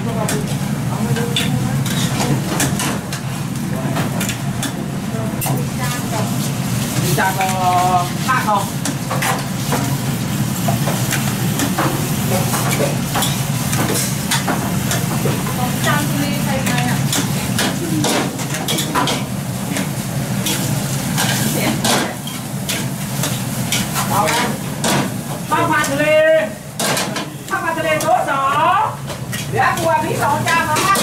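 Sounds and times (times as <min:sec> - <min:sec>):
rice sizzling in woks: 0:00.0 - 0:31.0.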